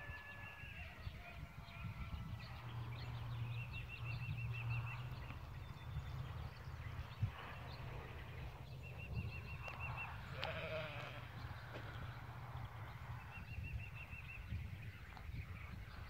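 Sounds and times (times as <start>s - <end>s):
lamb bleating: 10.4s - 11.3s.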